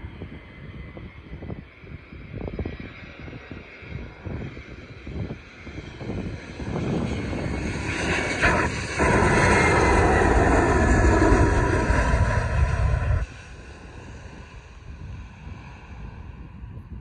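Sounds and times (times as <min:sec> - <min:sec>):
jet engines passing overhead: 0:00.0 - 0:17.0
jet engine whine falling in pitch: 0:05.6 - 0:16.5.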